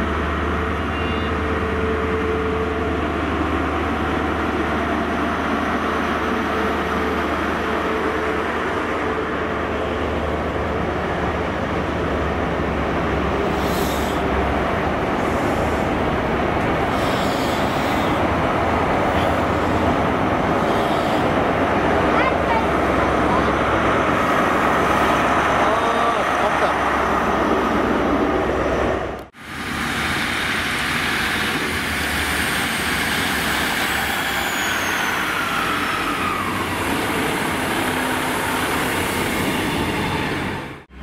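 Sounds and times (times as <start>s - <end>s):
diesel engine droning: 0.0s - 39.5s
train wheels squealing: 32.6s - 36.8s.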